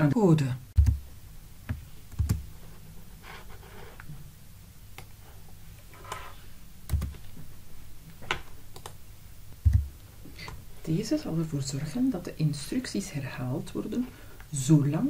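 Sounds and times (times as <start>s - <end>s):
typing on computer keyboard: 6.9s - 7.2s.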